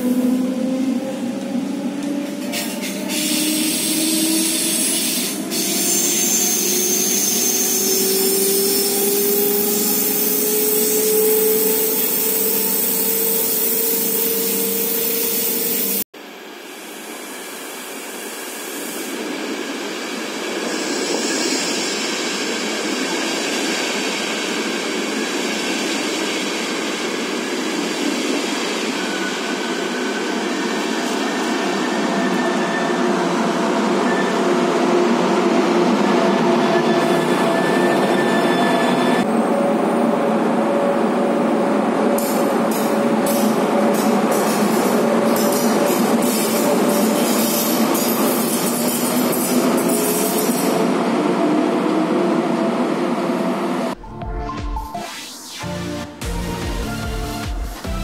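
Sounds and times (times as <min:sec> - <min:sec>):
train rumbling into station: 0:00.0 - 0:58.0.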